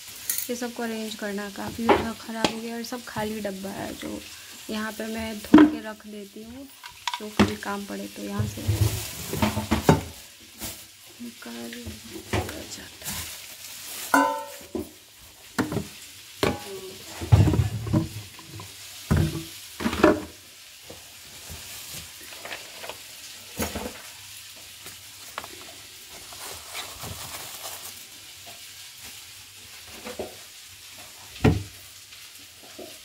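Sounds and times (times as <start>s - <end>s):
steady sizzling hiss: 0.0s - 33.0s.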